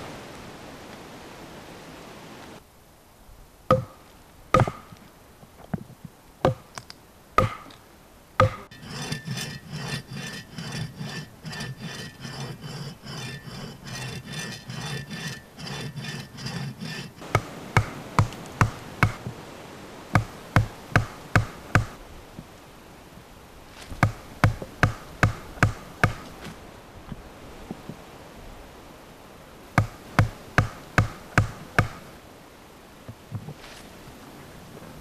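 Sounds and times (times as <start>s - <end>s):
rasping strokes on wood: 8.4s - 19.2s
knocks on wood: 17.3s - 19.3s.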